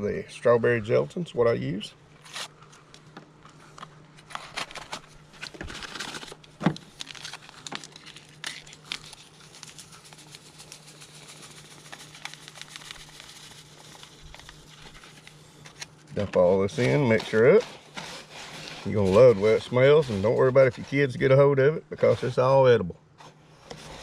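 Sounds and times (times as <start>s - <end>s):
packet tearing and crinkling: 4.2s - 17.6s
powder pouring: 7.6s - 15.4s.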